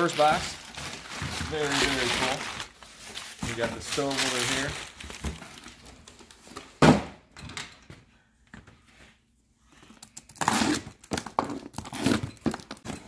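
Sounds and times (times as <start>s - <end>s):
cardboard and tape rustling: 0.0s - 6.8s.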